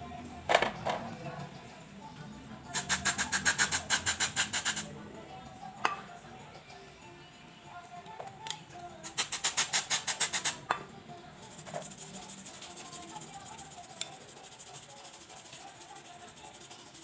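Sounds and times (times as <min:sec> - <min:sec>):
music with shaker percussion: 0:02.7 - 0:04.9, 0:09.0 - 0:10.7, 0:11.4 - 0:17.0.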